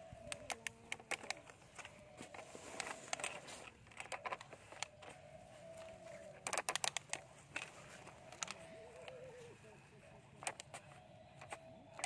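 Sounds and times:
plastic toy clicks and knocks: 0:00.2 - 0:05.2, 0:06.4 - 0:09.2, 0:10.3 - 0:12.0.

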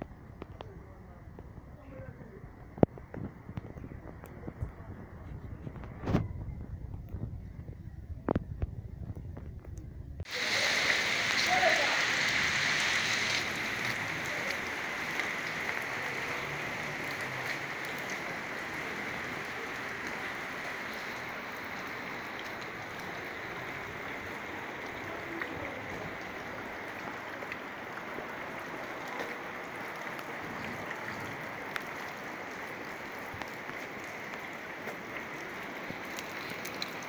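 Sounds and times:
heavy rain on flooded street: 0:10.2 - 0:37.0.

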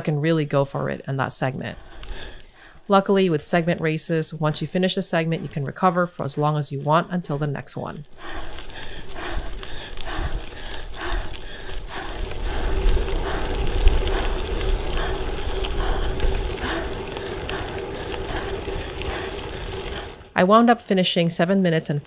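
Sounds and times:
bike tyres on gravel: 0:08.1 - 0:20.3
wind rumble on microphone: 0:08.1 - 0:20.4.

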